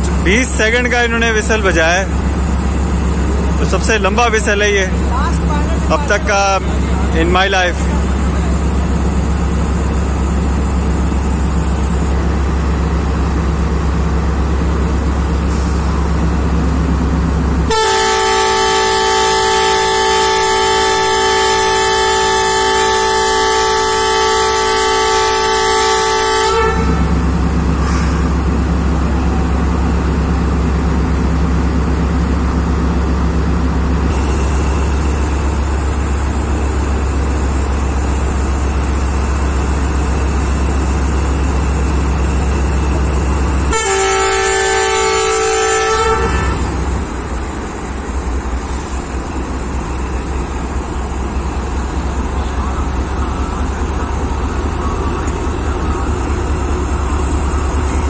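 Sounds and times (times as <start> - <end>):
diesel engine droning: 0.0 - 58.0
locomotive horn blast: 17.7 - 27.2, 43.7 - 47.2.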